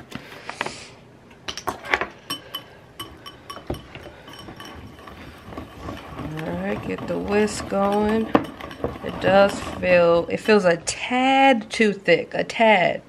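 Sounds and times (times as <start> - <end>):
whisk clinking against glass bowl: 2.3 - 10.8.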